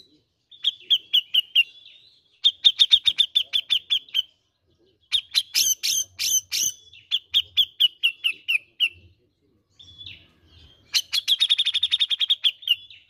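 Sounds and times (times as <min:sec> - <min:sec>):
bird chattering calls: 0:00.0 - 0:01.8, 0:02.4 - 0:04.4, 0:05.1 - 0:09.0, 0:10.9 - 0:12.9.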